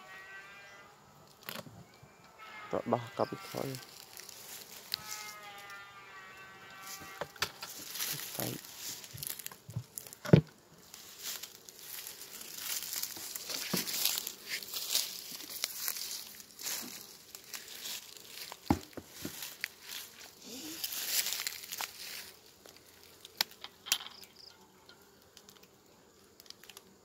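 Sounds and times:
short buzzing tone: 2.1 - 4.2, 4.9 - 7.4
dry leaves rustling: 3.2 - 10.2, 10.8 - 23.5.

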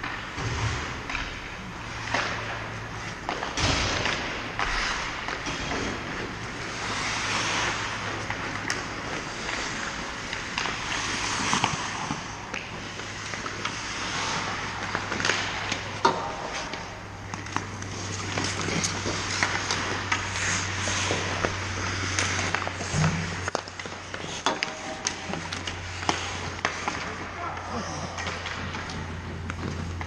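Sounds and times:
clacks of sticks and puck: 0.0 - 30.0
skates scraping on ice: 0.0 - 30.0
steady low hum: 0.0 - 30.0.

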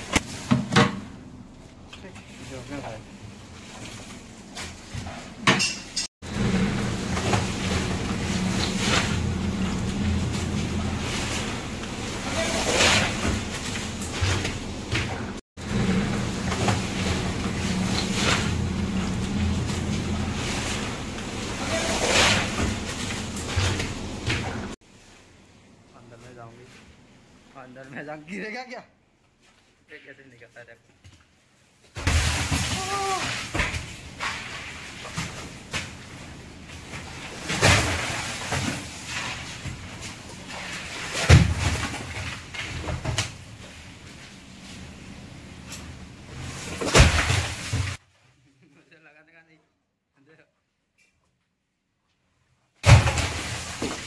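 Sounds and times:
steady machine hum: 6.2 - 24.7
ice and fish scraping on steel: 10.9 - 14.4, 20.3 - 23.8.

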